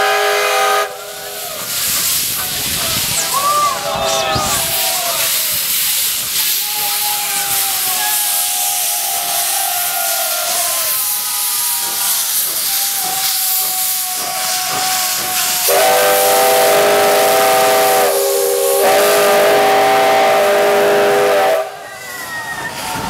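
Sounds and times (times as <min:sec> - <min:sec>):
steam whistle chord: 0:00.0 - 0:01.3, 0:15.7 - 0:21.8
steam locomotive hissing steam: 0:00.0 - 0:23.0.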